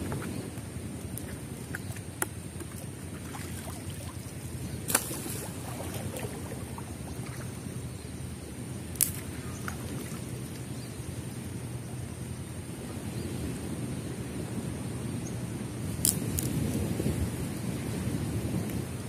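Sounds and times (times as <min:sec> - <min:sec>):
water sloshing: 0:00.0 - 0:08.0, 0:09.0 - 0:10.8.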